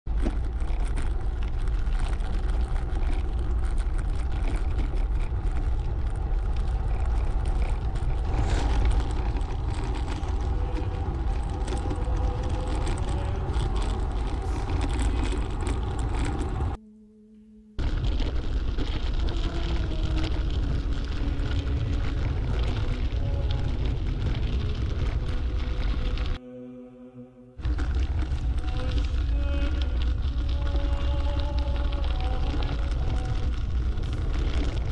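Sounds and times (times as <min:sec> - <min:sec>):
bicycle tyre noise: 0:00.1 - 0:16.8, 0:17.8 - 0:26.4, 0:27.6 - 0:34.9
wind buffeting microphone: 0:00.4 - 0:16.8.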